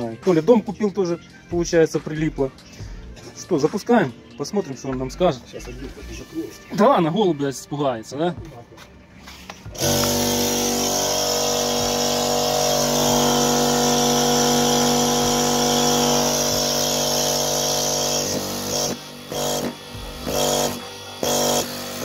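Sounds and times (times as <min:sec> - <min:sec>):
air compressor motor hum: 0:09.7 - 0:22.0.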